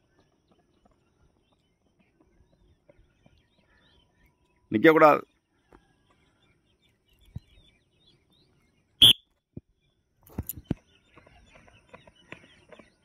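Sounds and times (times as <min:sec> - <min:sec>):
footsteps on rock: 0:10.3 - 0:13.0.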